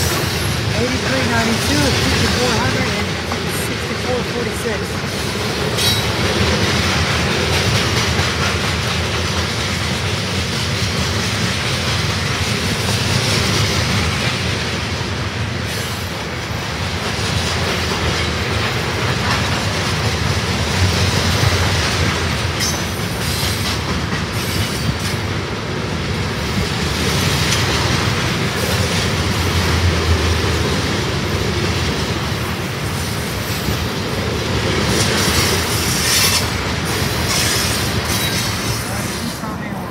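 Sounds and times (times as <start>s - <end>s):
freight train wheels rumbling on rails: 0.0s - 39.9s.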